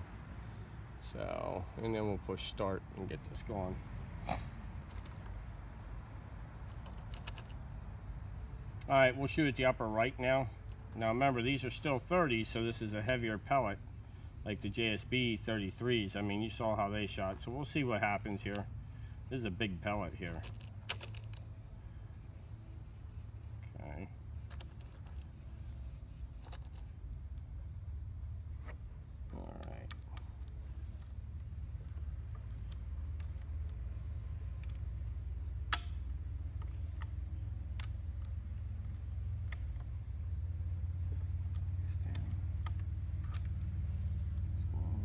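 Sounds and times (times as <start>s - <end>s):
insects chirring in grass: 0.0s - 45.0s
sharp click: 35.7s - 36.1s.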